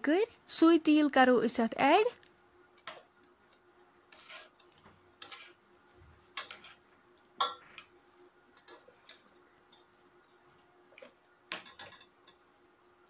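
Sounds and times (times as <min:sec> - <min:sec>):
ladle scraping metal pot: 0:04.1 - 0:05.6, 0:06.3 - 0:06.8.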